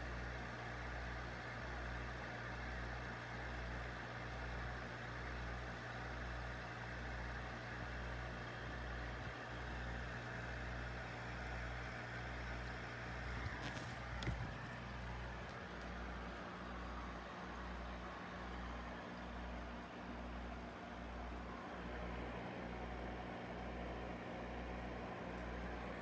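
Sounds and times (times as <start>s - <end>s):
aquarium pump humming: 0.0s - 26.0s.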